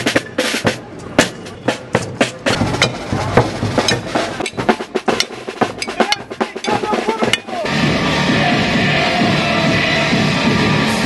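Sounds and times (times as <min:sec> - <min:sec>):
sharp drum strikes: 0:00.0 - 0:07.7
loud dense band music: 0:00.0 - 0:11.0.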